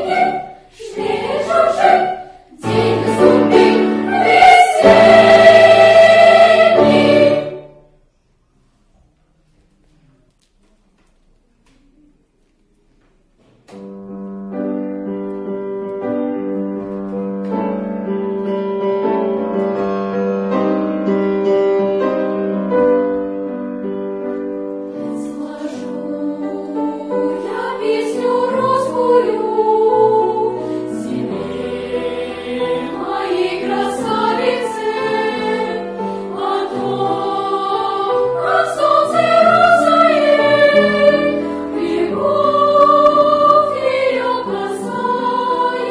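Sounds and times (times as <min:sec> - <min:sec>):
children's choir singing: 0:00.0 - 0:08.0, 0:24.4 - 0:45.9.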